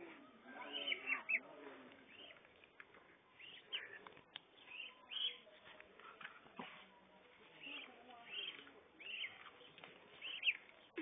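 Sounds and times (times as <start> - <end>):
young duck peeping: 0.6 - 1.4, 2.0 - 2.4, 3.3 - 5.6, 7.5 - 11.0.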